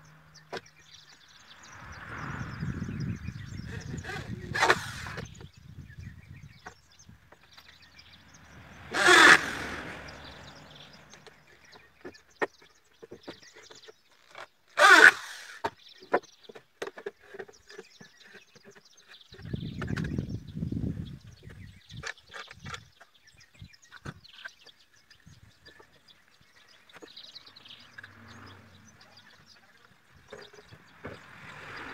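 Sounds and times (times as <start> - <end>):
electric drill bursts: 8.9 - 10.0, 14.8 - 15.6.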